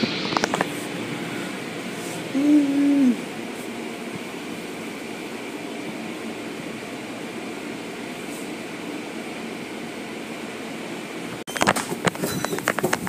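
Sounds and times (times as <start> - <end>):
sharp clicks and knocks: 11.5 - 13.0.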